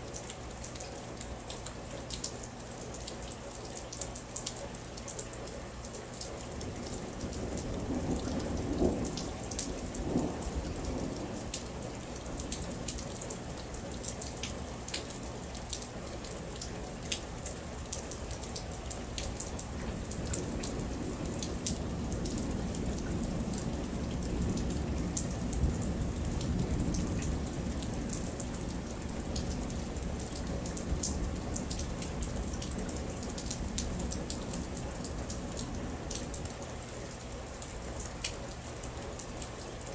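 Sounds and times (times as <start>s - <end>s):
rain drops falling: 0.0s - 39.9s
distant thunder rumble: 6.8s - 12.8s, 19.5s - 36.3s.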